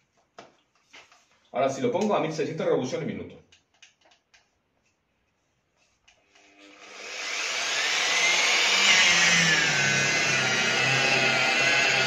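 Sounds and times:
electric polisher motor whine: 6.4s - 12.0s.

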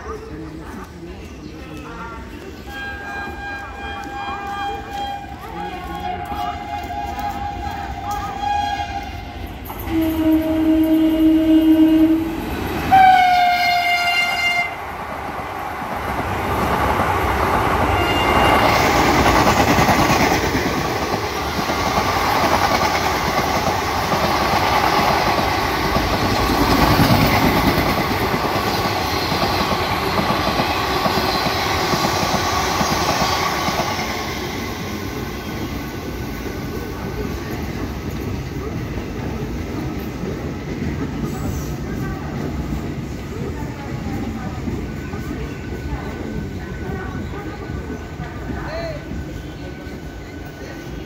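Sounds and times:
train wheels rumbling on rails: 0.6s - 51.0s
train horn: 2.7s - 14.8s, 17.8s - 19.2s.

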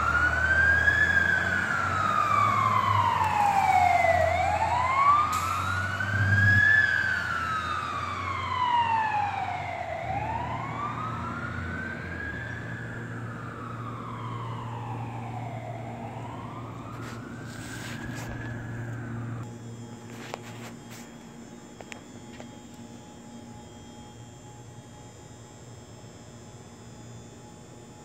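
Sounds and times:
truck engine rumbling: 0.0s - 7.4s
fire engine siren wailing: 0.0s - 28.0s.

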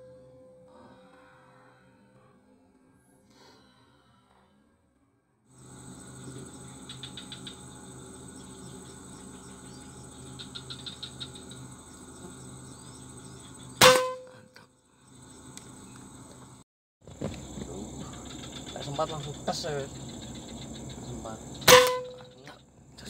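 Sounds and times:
insect buzz: 5.5s - 23.0s
rifle shot: 13.8s - 14.2s, 21.6s - 22.2s
clicking chirps: 15.5s - 16.4s.

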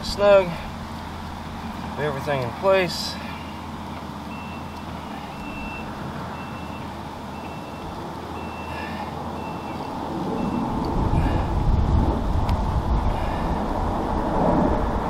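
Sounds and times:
low engine rumble: 0.0s - 15.0s
reversing alarm beeping: 4.3s - 10.8s
loud low rumble: 10.1s - 15.0s.

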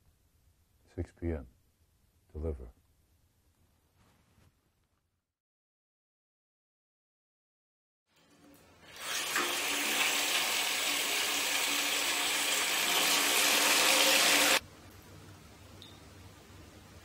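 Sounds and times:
water gushing from bathtub faucet: 8.4s - 14.6s.

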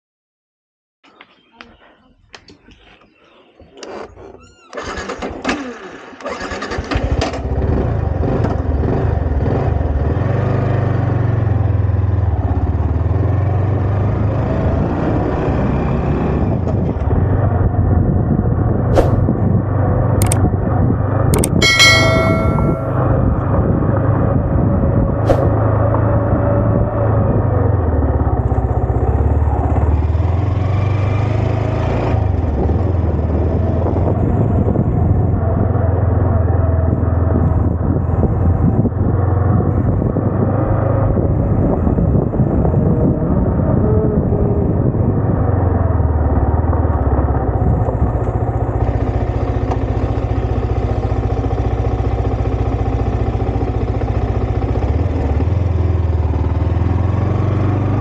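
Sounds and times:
motorcycle engine running: 17.0s - 30.7s, 31.3s - 58.0s.

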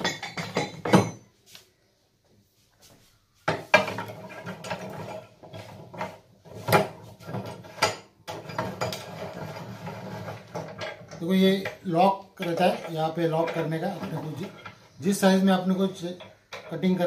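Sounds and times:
metal pipe clanking and knocking: 0.0s - 1.3s, 3.5s - 14.9s, 15.8s - 17.0s
vise clamp being worked: 3.6s - 15.0s.

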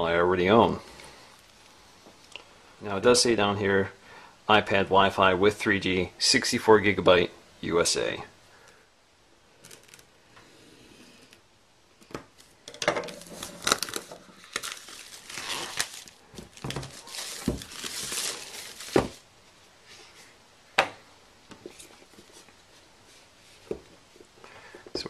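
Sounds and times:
plastic wrap crinkling and tearing: 9.6s - 10.2s, 12.4s - 19.3s.

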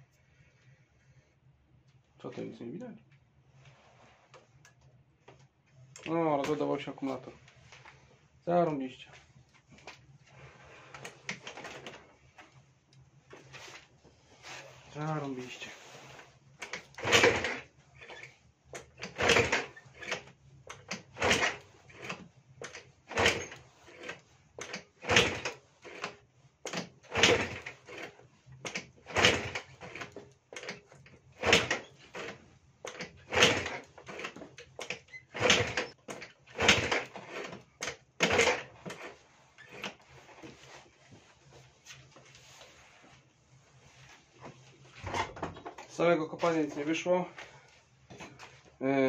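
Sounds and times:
scooter kick-starter clatter: 16.6s - 40.5s.

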